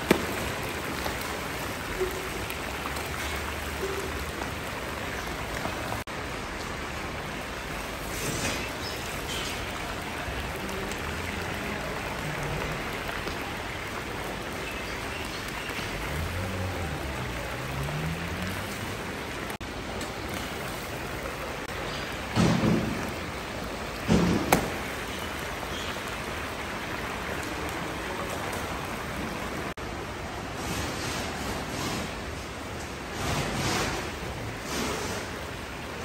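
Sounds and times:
broth bubbling and hissing: 0:07.2 - 0:13.1, 0:33.1 - 0:36.0.

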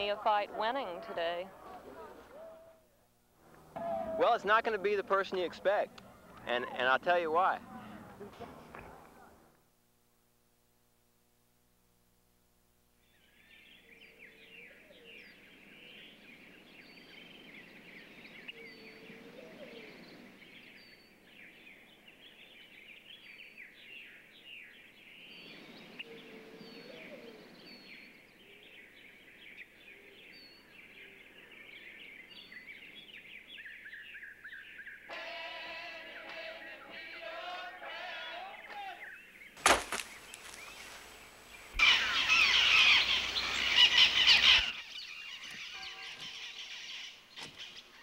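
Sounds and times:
lower rising bird calls: 0:13.0 - 0:35.1, 0:39.0 - 0:48.0
birds chirping and calling: 0:13.1 - 0:35.2, 0:35.9 - 0:48.0.

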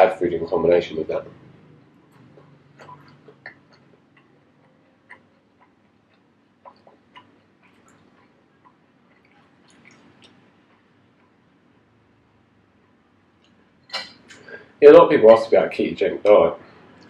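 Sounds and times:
wet mouth clicks of chewing: 0:02.1 - 0:11.4.

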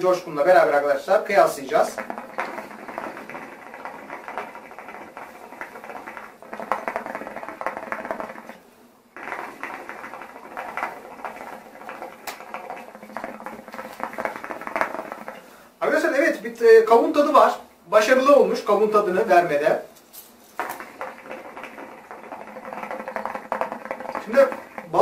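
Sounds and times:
hookah water bubbling: 0:00.0 - 0:25.0.

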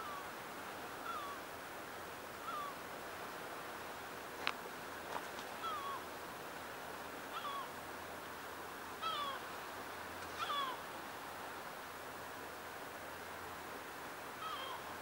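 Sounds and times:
sea waves: 0:00.0 - 0:15.0.

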